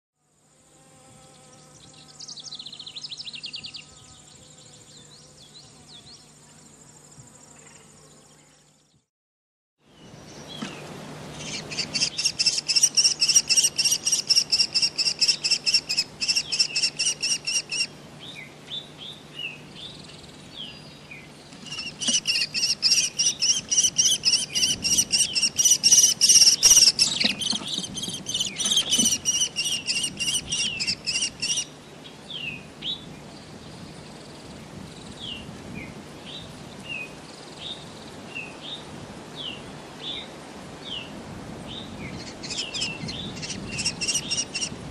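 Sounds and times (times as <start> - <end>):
bird calling shrill rapid notes: 11.4 - 17.9, 21.6 - 31.7, 42.2 - 44.7.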